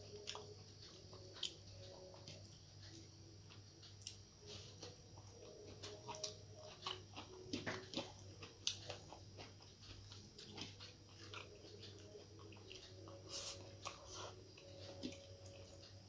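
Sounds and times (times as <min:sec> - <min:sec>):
faint low hum: 0:00.0 - 0:16.0
fingers mixing rice: 0:00.0 - 0:16.0
mouth chewing with wet smacks: 0:05.2 - 0:14.0.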